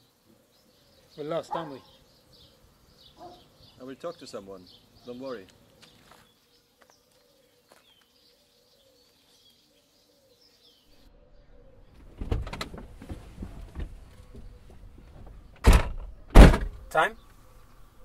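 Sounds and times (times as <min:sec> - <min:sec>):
faint bird calls: 0:00.0 - 0:12.3
dove cooing: 0:07.1 - 0:10.6
car door shutting: 0:12.0 - 0:16.8
rustling and knocks: 0:12.0 - 0:16.8.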